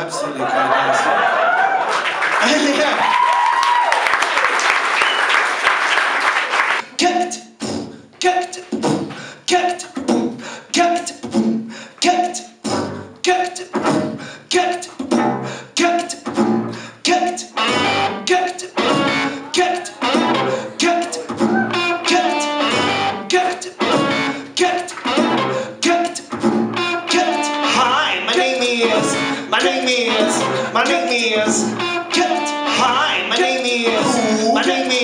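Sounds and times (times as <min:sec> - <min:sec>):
audience applause: 0:00.4 - 0:06.8
percussive rhythm with repeated note: 0:07.0 - 0:35.0.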